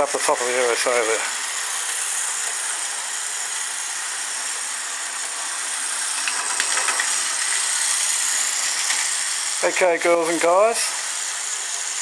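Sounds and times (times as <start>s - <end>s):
model train motor whirring: 0.0s - 12.0s.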